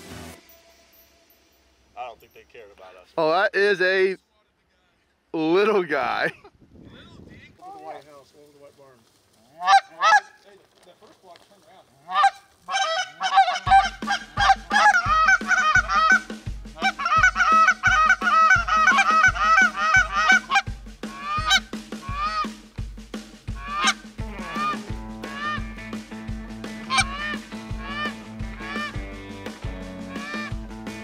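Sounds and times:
geese honking: 9.5s - 10.4s, 12.0s - 22.5s, 23.5s - 25.9s, 26.6s - 29.2s, 30.0s - 30.6s
low music beat: 12.7s - 31.0s.

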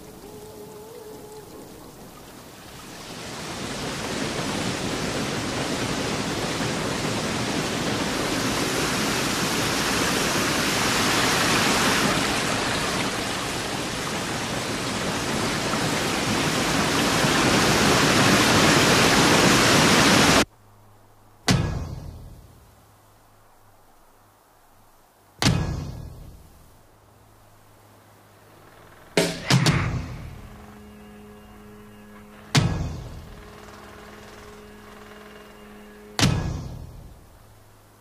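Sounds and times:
water rushing over rocks: 0.0s - 20.4s.

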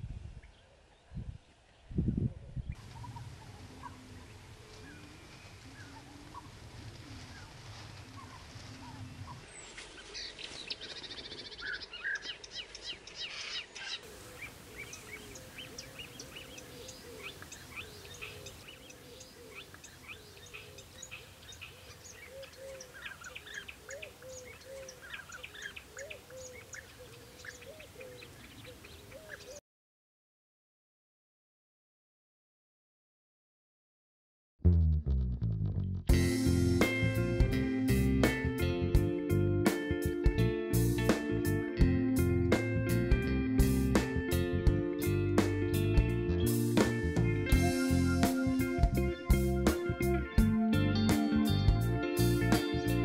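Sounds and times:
birds chirping: 0.4s - 29.6s, 45.0s - 53.0s.

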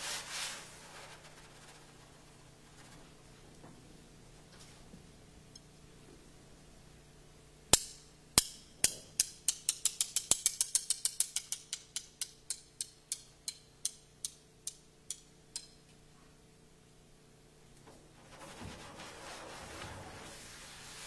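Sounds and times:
sharp percussive clicks: 7.7s - 15.8s.

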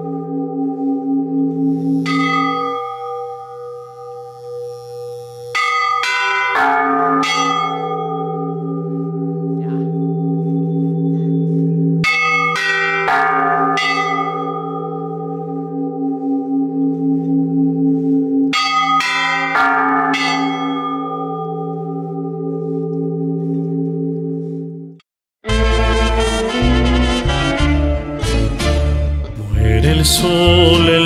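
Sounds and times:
church bells striking: 0.0s - 4.7s, 5.6s - 24.9s
bells humming: 0.0s - 24.9s.

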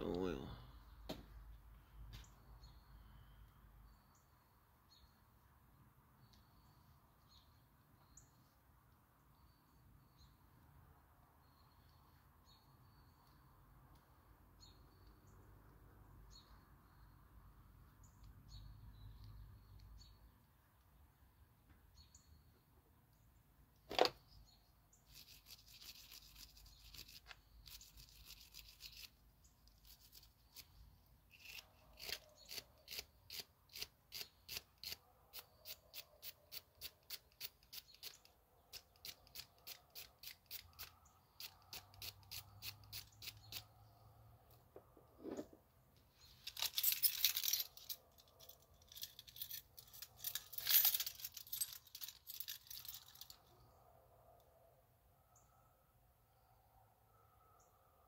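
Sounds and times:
ratchet clicking: 39.0s - 43.7s.

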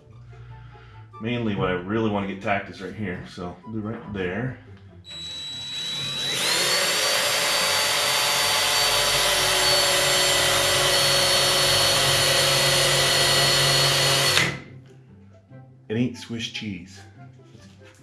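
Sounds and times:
electric drill drilling metal: 5.1s - 14.7s.

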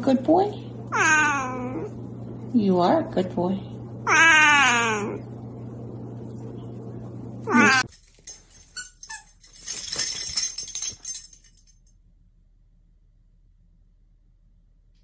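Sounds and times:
cat meowing: 0.9s - 1.9s, 4.0s - 5.2s, 7.5s - 7.9s.

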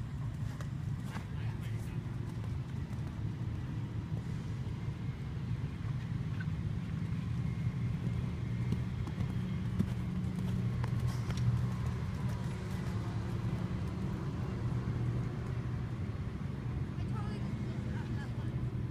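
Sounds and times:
muffled hoofbeats on sand: 7.2s - 15.8s.

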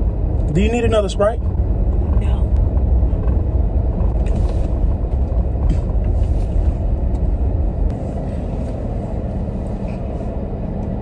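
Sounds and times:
car cabin road and engine rumble: 0.0s - 11.0s.

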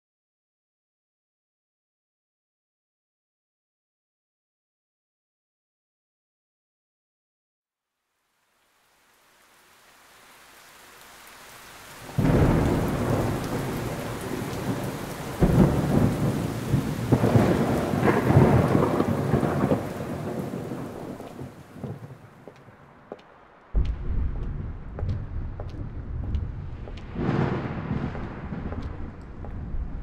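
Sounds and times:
rain: 7.9s - 30.0s
loud thunder claps: 12.0s - 22.2s, 23.8s - 30.0s
rolling thunder: 12.0s - 22.3s, 23.8s - 30.0s.

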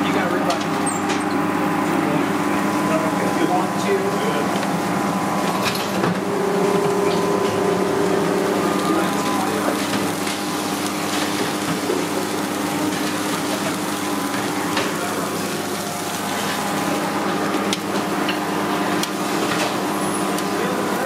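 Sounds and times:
kitchen hum: 0.0s - 21.0s
meat sizzling on a griddle: 8.9s - 21.0s.

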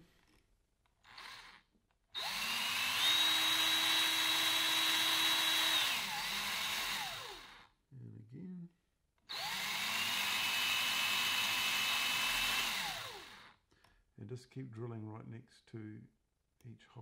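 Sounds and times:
cordless drill whining: 1.0s - 7.7s, 9.3s - 13.6s.

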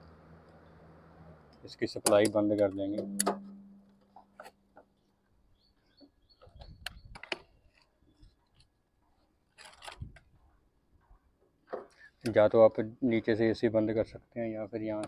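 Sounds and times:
low steady hum: 0.0s - 4.8s
clicks of wires and plastic handled: 9.5s - 10.4s.

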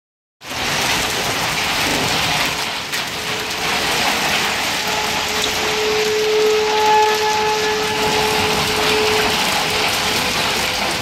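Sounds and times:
heavy rain with hail: 0.4s - 11.0s.

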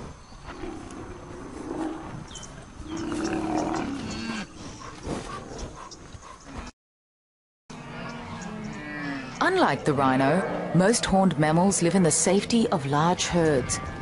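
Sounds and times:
rhinoceros low moo-like calls: 0.5s - 4.8s.

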